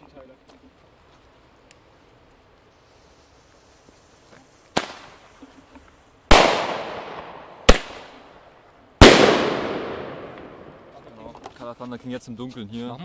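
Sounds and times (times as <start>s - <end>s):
firework launch pop: 4.7s - 5.1s
sharp crack: 4.7s - 5.5s, 6.3s - 11.5s
loud echoing firework bang: 6.3s - 8.2s, 9.0s - 11.1s.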